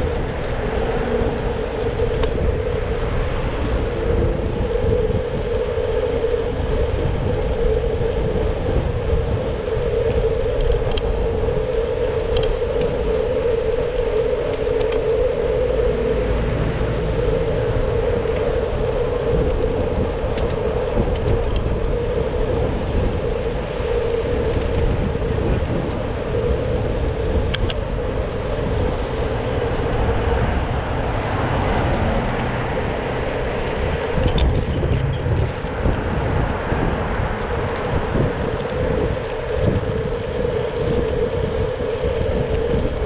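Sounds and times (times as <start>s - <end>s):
bicycle road noise: 0.0s - 43.0s
wind noise on microphone: 0.0s - 43.0s.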